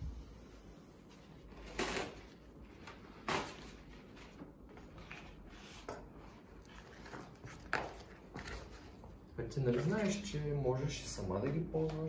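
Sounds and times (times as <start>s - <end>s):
paper towels tearing: 1.4s - 2.5s.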